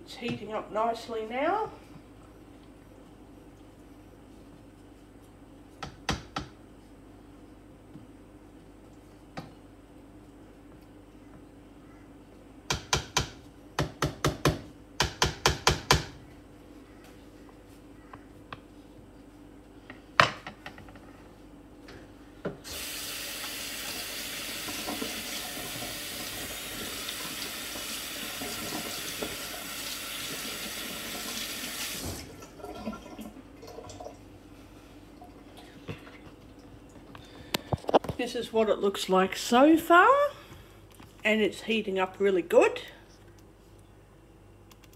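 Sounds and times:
kitchen tap running: 0:22.6 - 0:34.2.

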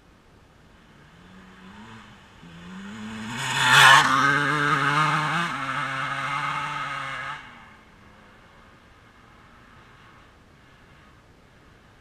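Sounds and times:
dirt bike engine revving: 0:01.0 - 0:07.8.

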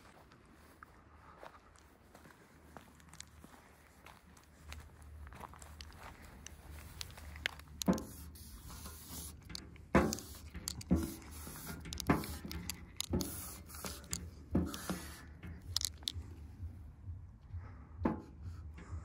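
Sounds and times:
marker scraping squeaks on metal: 0:07.7 - 0:16.0.

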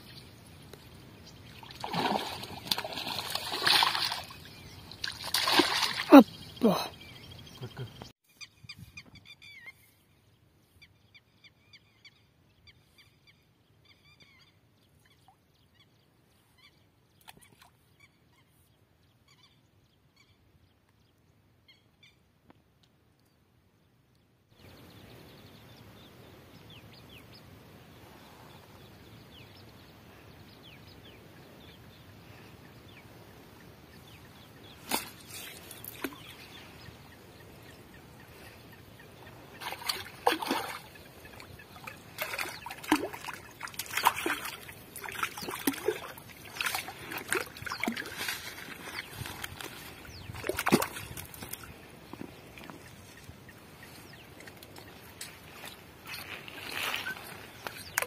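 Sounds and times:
water splashing and sloshing: 0:01.4 - 0:06.8, 0:39.5 - 0:53.3
faint bird chirps: 0:05.9 - 0:20.6, 0:52.2 - 0:58.0.

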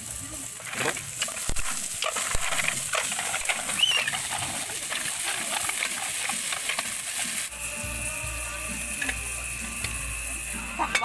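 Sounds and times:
hot oil sizzling: 0:00.0 - 0:11.0
shells clattering into metal pot: 0:00.6 - 0:07.1, 0:10.8 - 0:11.0.

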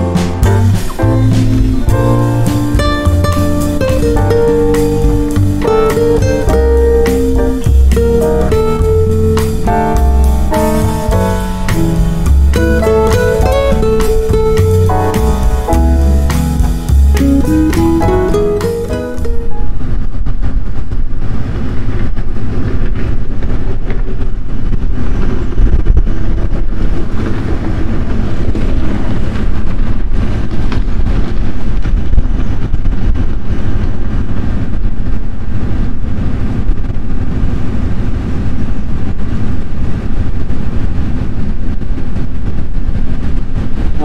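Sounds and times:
boat engine low rumble: 0:00.0 - 0:44.0.

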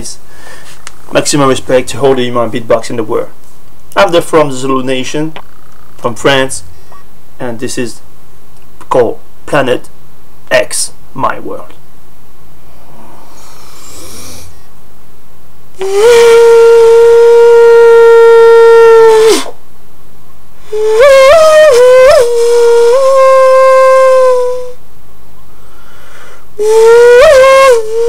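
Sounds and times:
beatboxer whistle-like tones: 0:13.3 - 0:14.6, 0:15.8 - 0:17.0.

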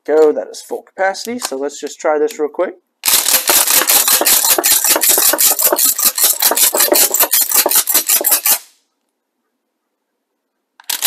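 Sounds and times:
shotgun pump action clacking: 0:03.0 - 0:08.7, 0:10.8 - 0:11.0.

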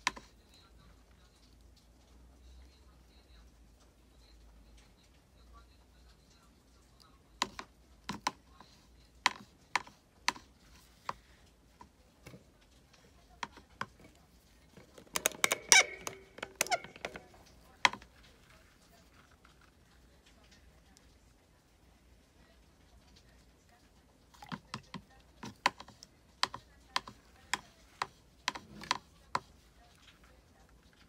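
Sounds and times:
tools tapping on tabletop: 0:14.8 - 0:17.3.

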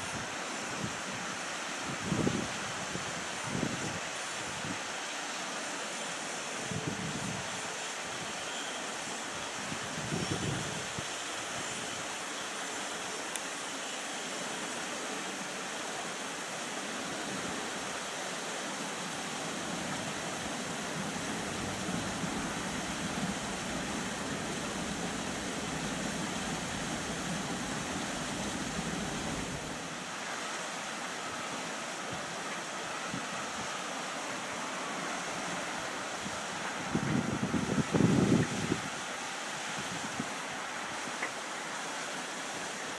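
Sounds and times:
faint steady whine: 0:05.6 - 0:42.8
jet engines idling: 0:19.6 - 0:29.9.

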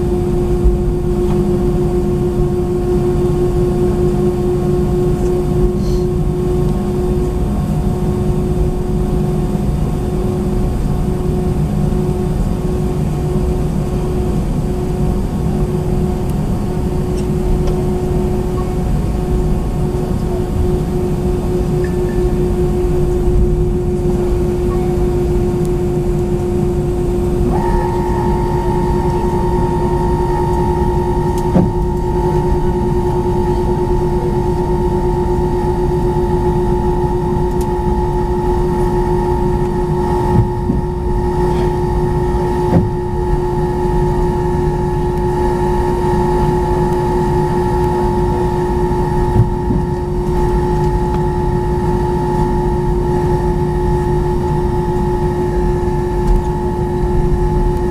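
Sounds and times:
higher engine whine: 0:00.0 - 0:57.9
jet engines rumbling and whining: 0:00.0 - 0:57.9.

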